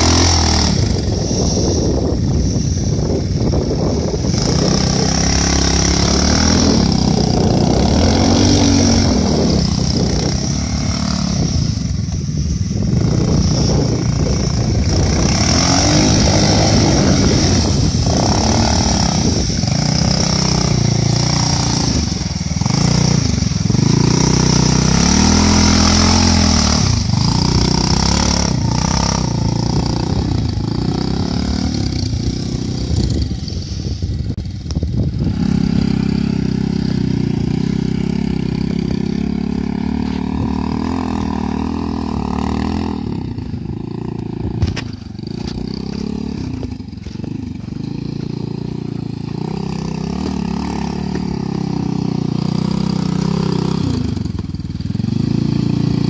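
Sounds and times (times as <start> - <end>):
steady high-pitched hiss: 0.0 - 31.4
motorcycle engine revving: 0.0 - 56.0.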